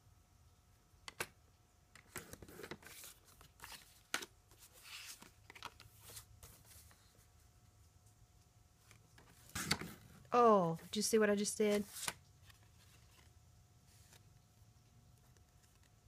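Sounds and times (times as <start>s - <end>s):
card rustling and scraping: 2.0s - 7.3s, 8.8s - 10.3s, 11.6s - 14.4s.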